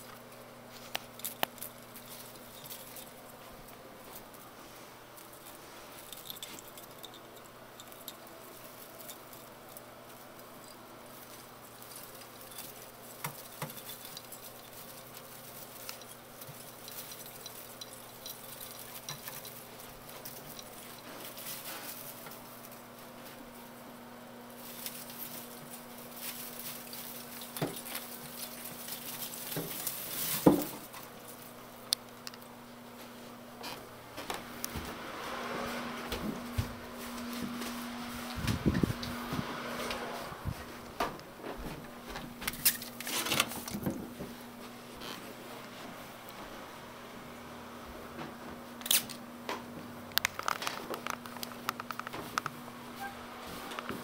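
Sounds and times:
artificial tree branches rustling: 0.0s - 54.0s
steady low hum: 0.0s - 54.0s.

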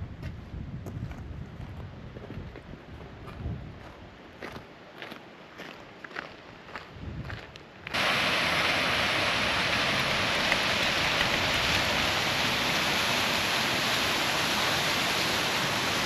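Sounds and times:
waterfall rushing into pool: 7.9s - 16.0s.

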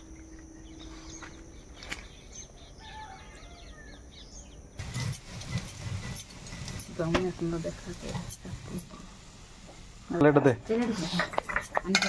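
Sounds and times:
small birds chirping: 0.2s - 6.8s
mushrooms frying in a pan: 4.8s - 12.0s.

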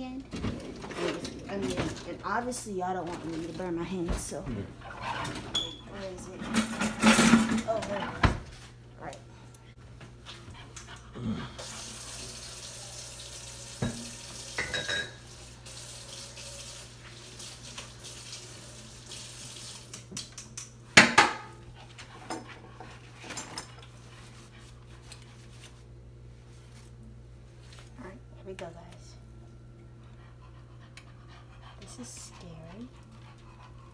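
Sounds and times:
utensils and dishes clinking: 4.9s - 8.0s, 13.8s - 15.3s
tap running into sink: 13.7s - 15.2s.

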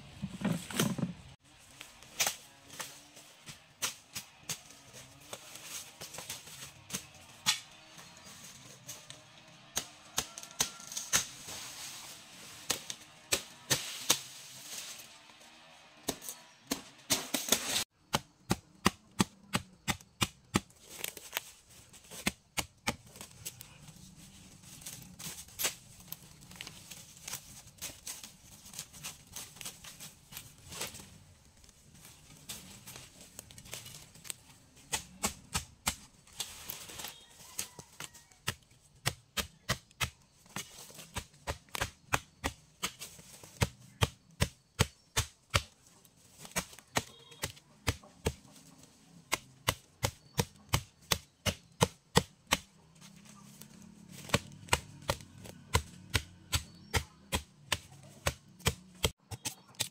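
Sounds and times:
leaves rustling: 10.3s - 15.6s, 20.6s - 22.3s, 22.9s - 38.4s, 52.4s - 55.9s.

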